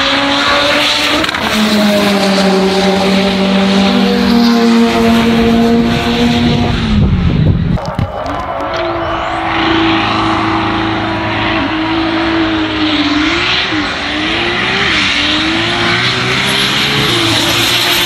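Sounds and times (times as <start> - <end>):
racing car engines revving: 0.0 - 18.0
dense rushing noise: 5.2 - 18.0.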